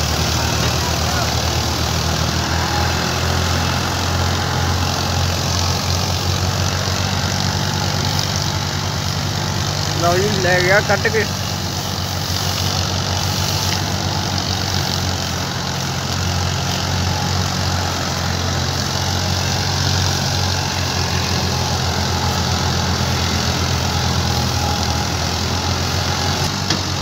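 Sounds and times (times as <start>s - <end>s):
tractor engine running: 0.0s - 27.0s.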